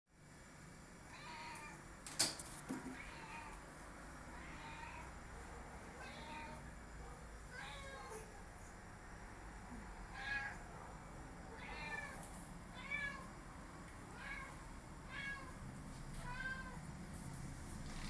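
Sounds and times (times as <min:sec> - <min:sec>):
cat meowing: 0:01.1 - 0:01.8, 0:03.0 - 0:03.6, 0:04.4 - 0:05.1, 0:06.0 - 0:06.6, 0:07.5 - 0:08.3, 0:10.1 - 0:10.6, 0:11.5 - 0:13.3, 0:14.1 - 0:15.6, 0:16.2 - 0:16.8.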